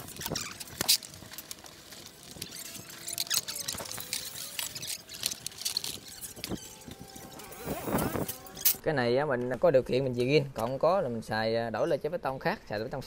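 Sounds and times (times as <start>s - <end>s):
metal tools and parts clinking: 0.0s - 8.8s.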